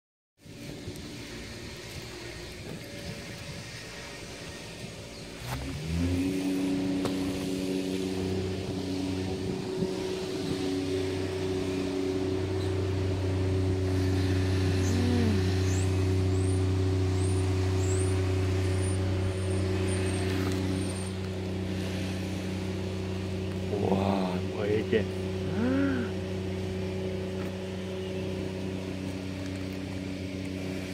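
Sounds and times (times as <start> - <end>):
engine humming steadily: 0.4 - 30.9.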